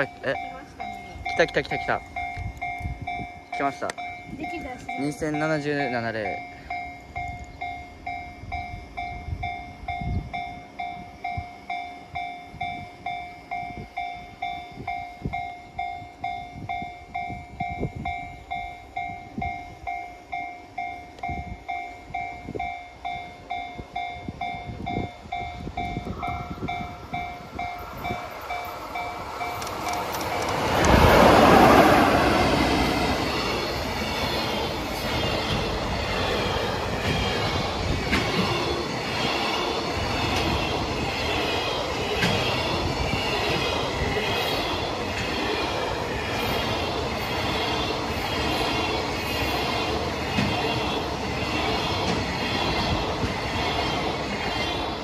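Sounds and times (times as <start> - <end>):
level crossing warning bell ringing: 0.0 - 39.0
electric locomotive passing: 0.0 - 55.0
freight train wheel clatter: 24.9 - 55.0.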